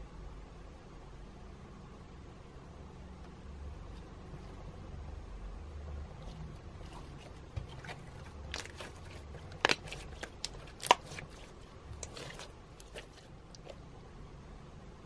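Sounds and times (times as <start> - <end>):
slime squelching: 6.1 - 14.0.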